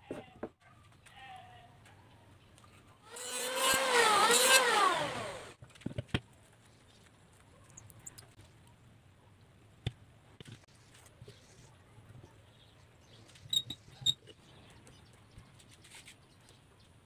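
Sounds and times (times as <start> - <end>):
electric planer shaving wood: 3.1 - 5.6.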